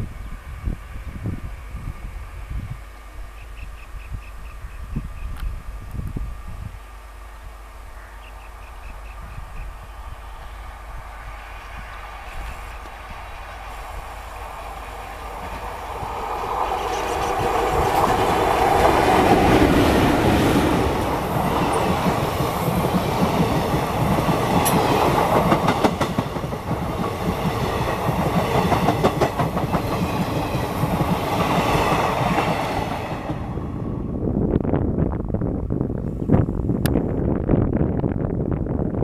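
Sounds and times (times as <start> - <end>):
passenger train passing: 0.0 - 39.0
wheels clacking over rail joints: 14.4 - 33.5.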